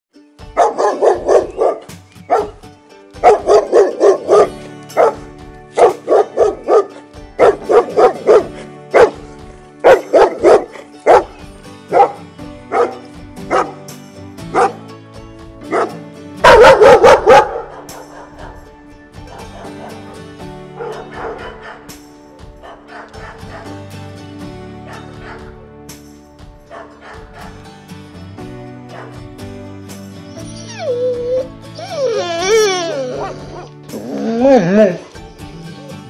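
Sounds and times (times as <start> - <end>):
dog barking: 0.6 - 2.6, 3.2 - 5.2, 5.8 - 9.2, 9.8 - 13.8, 14.5 - 14.8, 15.7 - 18.7, 20.8 - 21.9, 22.6 - 23.7, 24.9 - 25.5, 26.7 - 27.5, 28.9 - 29.2.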